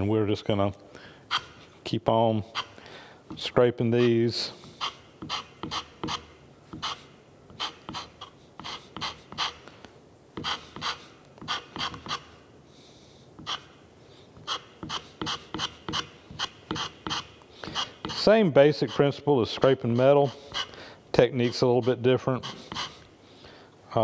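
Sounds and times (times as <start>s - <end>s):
hand scraper strokes on metal: 3.4s - 9.6s, 10.4s - 12.3s, 14.4s - 23.1s.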